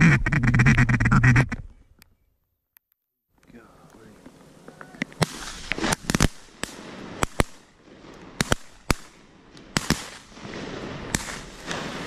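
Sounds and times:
shotgun blasts: 5.2s - 7.7s, 8.4s - 12.0s.

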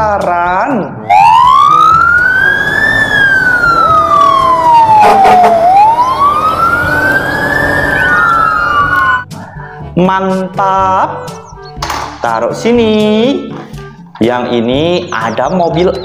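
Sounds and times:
fire engine siren wailing: 1.0s - 9.3s.

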